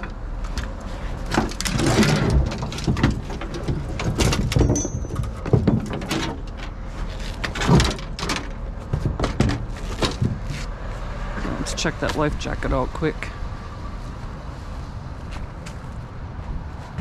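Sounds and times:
items knocking on truck bed liner: 1.3s - 6.5s, 7.5s - 10.6s.

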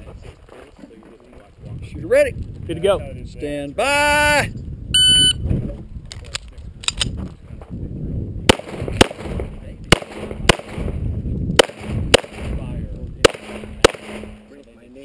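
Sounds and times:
pistol shots: 8.5s - 11.0s, 11.6s - 12.6s, 13.2s - 14.6s.

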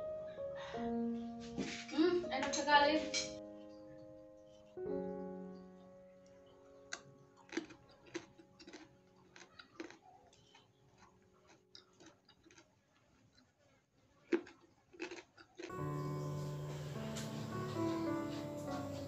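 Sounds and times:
soft piano chord: 0.0s - 7.4s, 15.7s - 19.0s.

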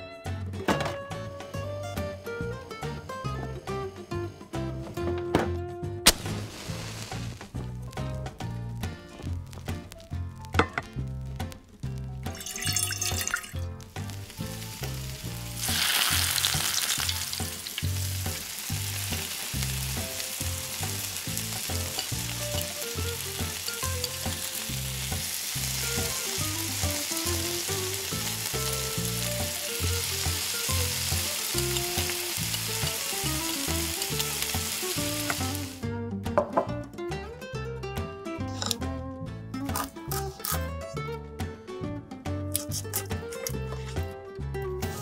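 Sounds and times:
soft background music: 0.0s - 45.0s
food sizzling in a pan: 6.1s - 8.0s, 11.0s - 35.8s.

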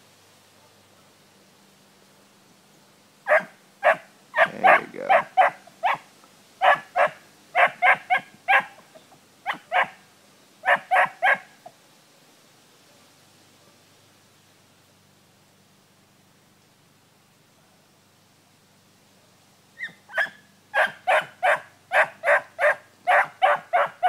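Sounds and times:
dog barking: 3.2s - 6.0s, 6.6s - 8.8s, 9.4s - 10.0s, 10.6s - 11.5s, 19.8s - 24.0s.

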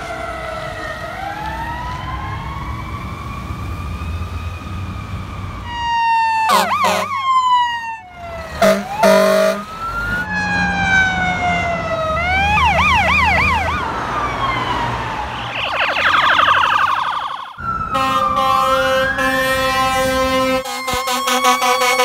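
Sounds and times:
fast siren yelp: 0.0s - 22.0s
wailing fire truck siren: 0.0s - 22.0s
air horn blasts: 6.5s - 7.2s, 8.6s - 9.7s, 17.9s - 22.0s.

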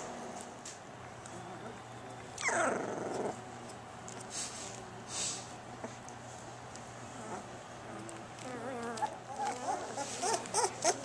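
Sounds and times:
puppy whining: 1.3s - 3.5s, 7.1s - 11.0s.

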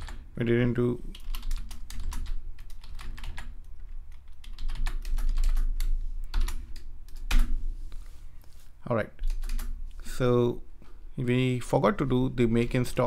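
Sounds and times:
computer keyboard keys clicking: 1.1s - 7.5s, 9.2s - 9.7s.

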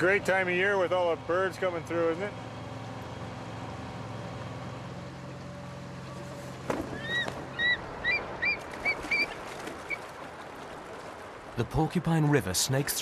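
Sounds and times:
boat motor humming: 0.0s - 13.0s
birds chirping: 6.0s - 10.2s.

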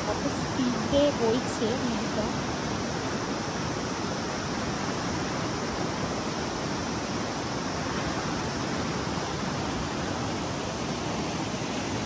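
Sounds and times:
river rushing over rapids: 0.0s - 12.0s.

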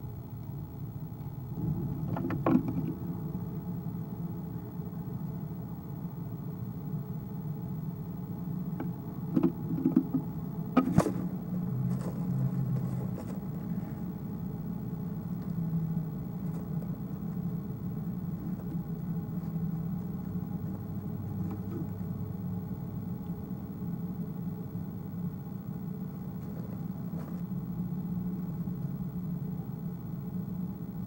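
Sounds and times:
low background hum: 0.0s - 31.0s
knocks and scrapes in wooden box: 1.8s - 3.1s, 10.8s - 11.3s, 21.3s - 22.0s.

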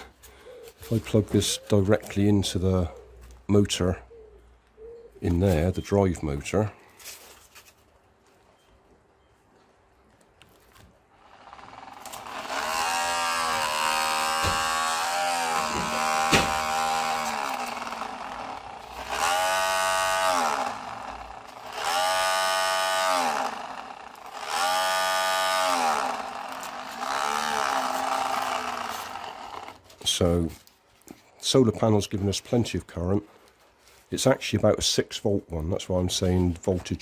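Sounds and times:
small electric motor whining: 11.1s - 30.0s.

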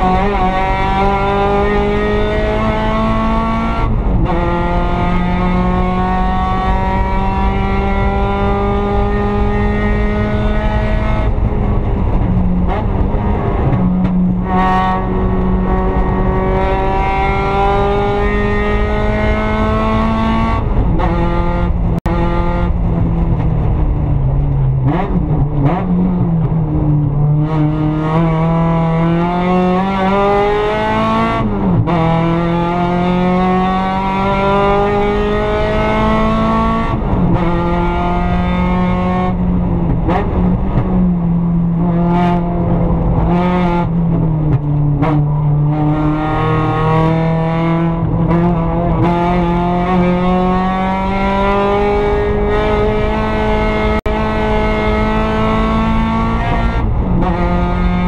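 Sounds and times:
race car engine accelerating: 0.0s - 58.0s.

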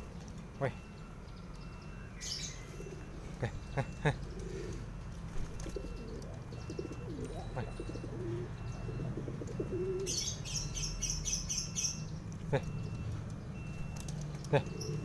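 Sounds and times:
pigeons cooing: 2.2s - 15.0s
high chirps: 5.6s - 15.0s.

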